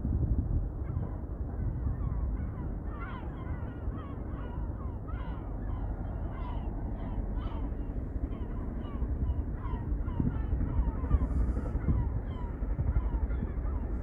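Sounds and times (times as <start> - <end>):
wind on microphone: 0.0 - 3.6, 7.6 - 14.0
birds calling: 2.6 - 14.0.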